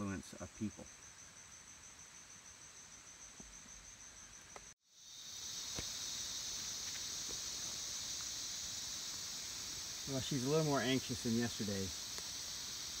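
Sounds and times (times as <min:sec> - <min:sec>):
high insect buzzing chorus: 0:00.0 - 0:13.0
insects chirping: 0:00.0 - 0:13.0.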